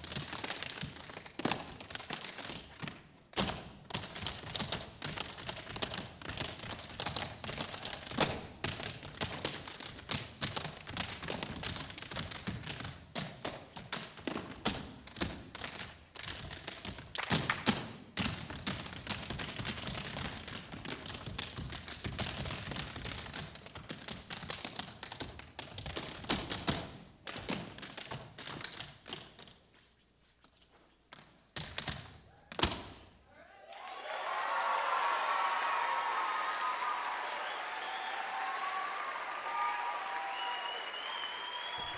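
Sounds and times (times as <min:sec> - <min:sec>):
tap shoes on stage floor: 0:00.0 - 0:29.7, 0:31.1 - 0:33.0
applause: 0:17.1 - 0:17.7, 0:33.7 - 0:41.9.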